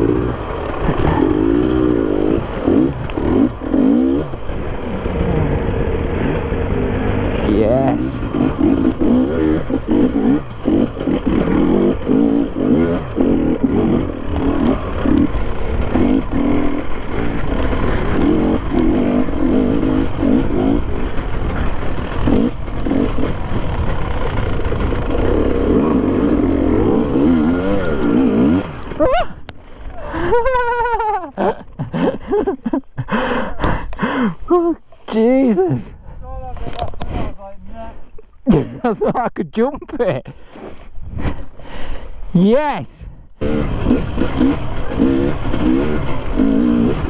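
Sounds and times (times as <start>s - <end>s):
motorcycle engine revving: 0.0s - 32.9s, 43.3s - 47.0s.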